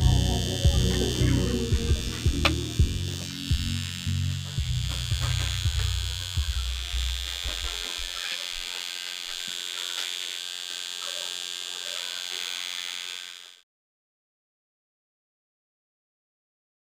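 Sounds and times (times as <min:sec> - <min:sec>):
low buzz: 0:00.0 - 0:11.0
electric motors whining: 0:00.0 - 0:13.6.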